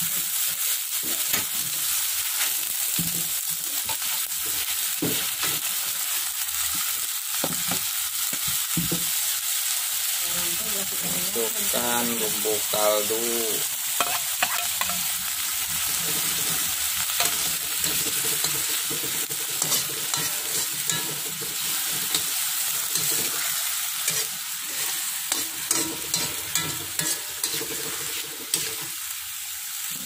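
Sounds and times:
vegetables sizzling in a wok: 0:00.0 - 0:30.0
metal spatula scraping pan: 0:14.0 - 0:15.1, 0:15.9 - 0:29.0.

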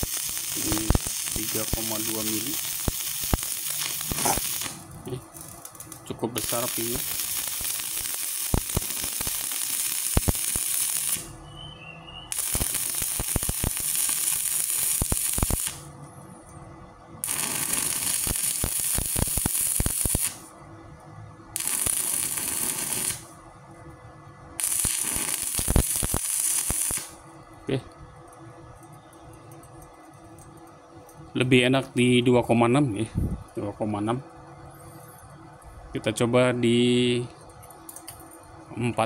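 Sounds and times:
welding arc crackling hiss: 0:00.0 - 0:11.4, 0:12.3 - 0:15.9, 0:17.2 - 0:20.6, 0:21.6 - 0:23.4, 0:24.6 - 0:27.2.

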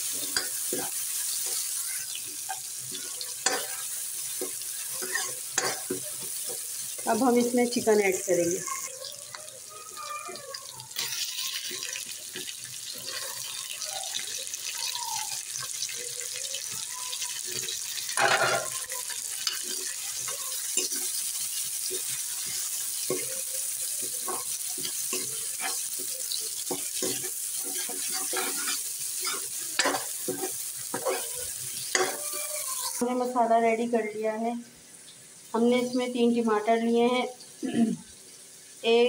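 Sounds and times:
chicken sizzling in hot oil: 0:00.0 - 0:39.0.

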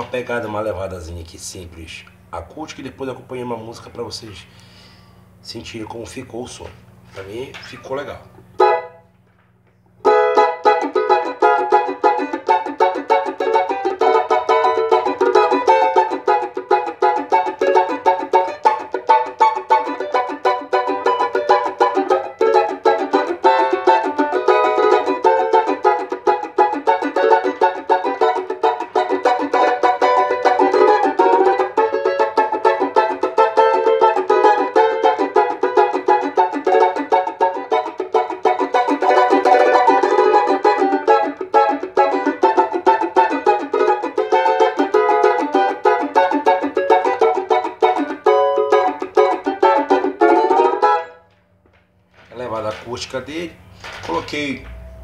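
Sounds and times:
banjo strummed: 0:08.5 - 0:09.0, 0:10.0 - 0:51.3.

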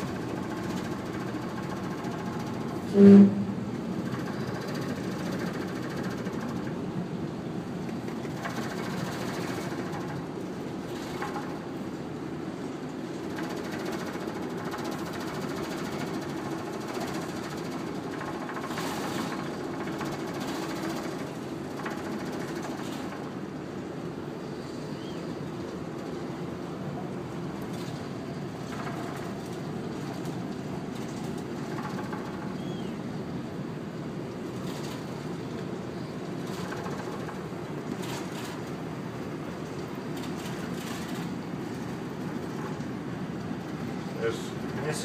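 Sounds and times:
ship engines droning: 0:00.0 - 0:45.0
very loud low tone: 0:02.9 - 0:03.7.

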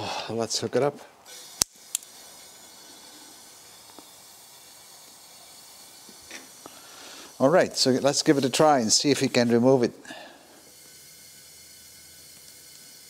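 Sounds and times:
compressed air hissing: 0:01.2 - 0:13.0
air coupler clicking: 0:01.6 - 0:02.2.

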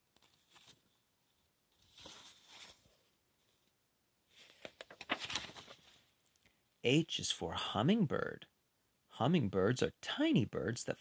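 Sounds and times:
paper pages rustling: 0:00.1 - 0:03.7, 0:04.3 - 0:06.2.

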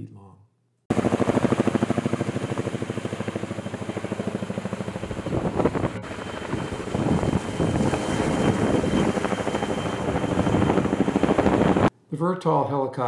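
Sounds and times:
helicopter rotors beating: 0:00.9 - 0:11.9
wind noise: 0:05.0 - 0:11.9.

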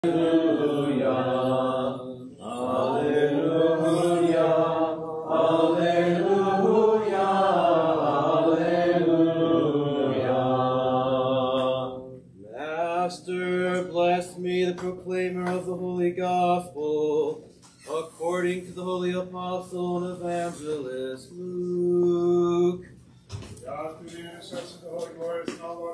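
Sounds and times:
men chanting: 0:00.0 - 0:17.3.

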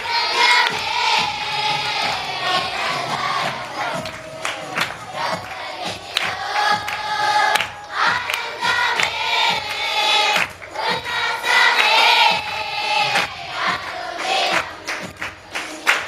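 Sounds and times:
children singing: 0:00.0 - 0:16.0
hands clapping: 0:00.0 - 0:16.0.

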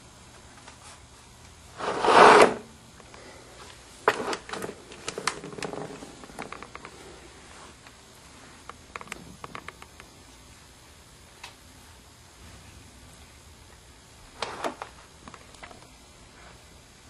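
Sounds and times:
plastic ball rolling in track: 0:01.8 - 0:02.7, 0:04.1 - 0:06.8.

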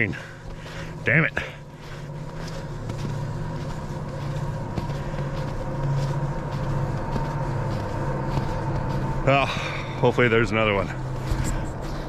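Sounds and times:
faint steady whine: 0:00.0 - 0:12.0
train low rumble: 0:00.0 - 0:12.0.

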